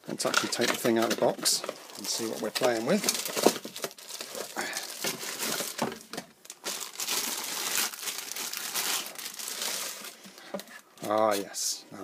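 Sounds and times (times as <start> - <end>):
cardboard and plastic rustling: 0.1 - 11.4.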